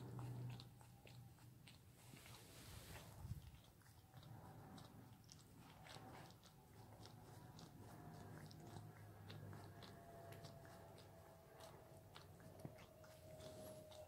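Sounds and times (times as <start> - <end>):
dog licking paw: 0.0 - 14.0.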